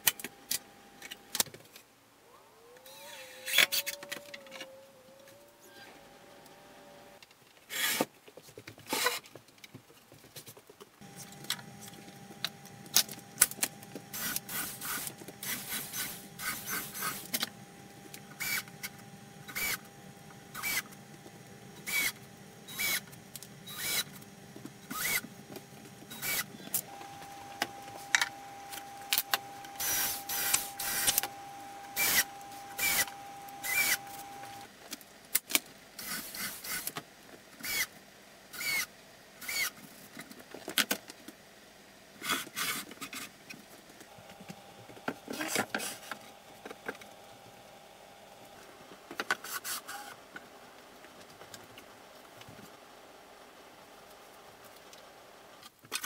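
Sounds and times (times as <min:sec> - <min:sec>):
steady hum: 0:11.0 - 0:34.7
cordless drill driving screws: 0:12.9 - 0:17.5, 0:18.3 - 0:19.9, 0:20.5 - 0:20.9, 0:21.8 - 0:23.1, 0:23.7 - 0:24.2, 0:24.9 - 0:25.3, 0:26.1 - 0:34.6, 0:38.6 - 0:39.7.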